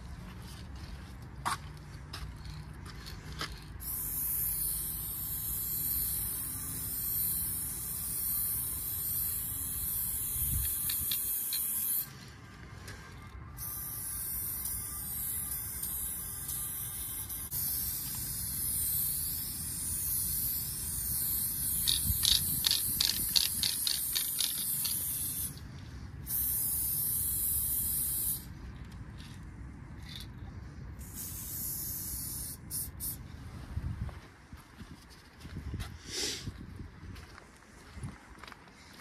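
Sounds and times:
spray paint can hissing: 2.4 - 12.2, 13.6 - 25.6, 26.2 - 28.6, 31.0 - 33.2, 36.0 - 36.4.

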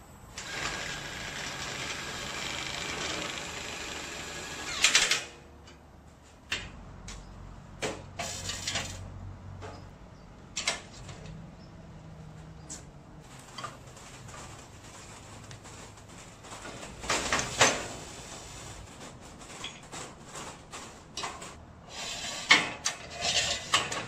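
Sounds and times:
impact wrench running: 0.4 - 5.3
power tools clicking and knocking: 0.4 - 5.8.

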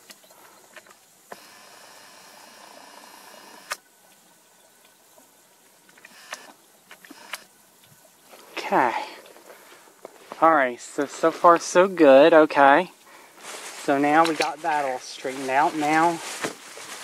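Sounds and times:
camera zoom lens motor whirring: 1.3 - 3.8, 6.0 - 7.5.

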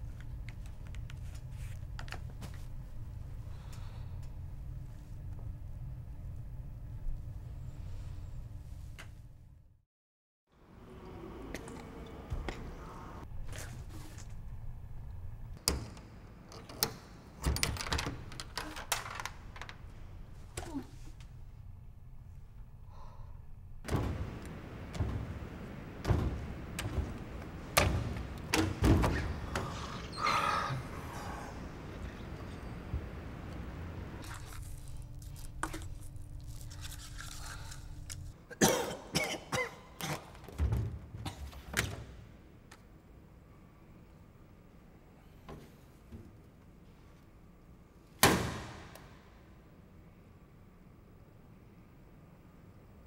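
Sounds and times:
low steady hum: 0.0 - 9.8, 10.7 - 39.8
man coughing hard: 38.5 - 40.2.

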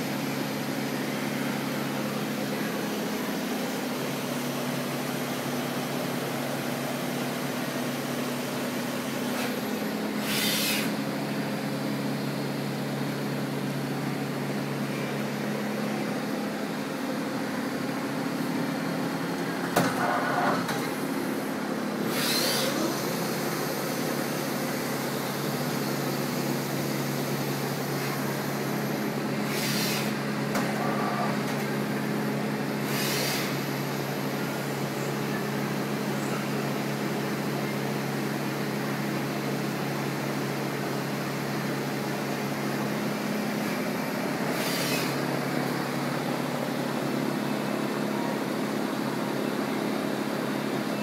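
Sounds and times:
short air hissing bursts: 10.2 - 11.0, 29.4 - 30.2, 32.8 - 33.7, 44.5 - 45.3.

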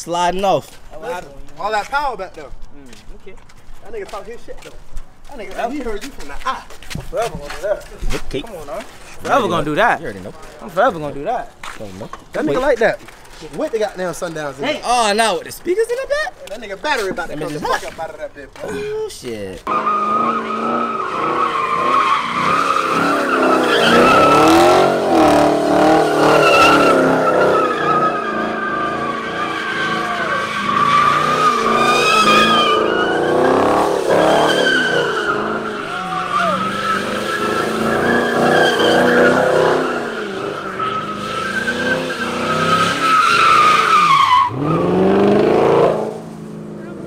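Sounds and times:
tyres squealing: 11.8 - 45.4
car engine revving: 19.7 - 47.0.

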